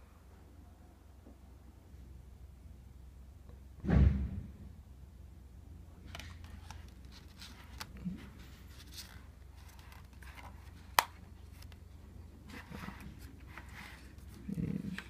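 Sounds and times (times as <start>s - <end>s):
paper pages rustling: 6.1s - 15.0s.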